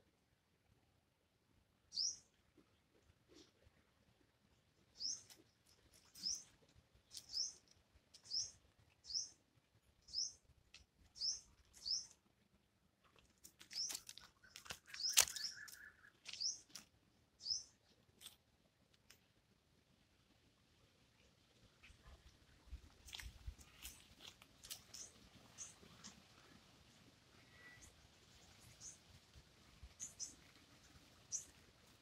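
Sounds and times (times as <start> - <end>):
small bird chirping: 1.9 - 2.4, 4.9 - 9.4, 10.0 - 12.3, 13.4 - 16.8, 17.4 - 18.3, 23.1 - 26.6, 27.4 - 31.8
brief steady tone: 27.4 - 27.9.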